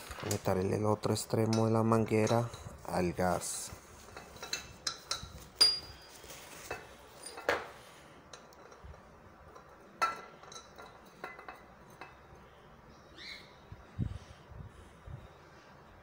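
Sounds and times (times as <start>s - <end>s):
metal clicks and clinks: 8.3s - 12.2s.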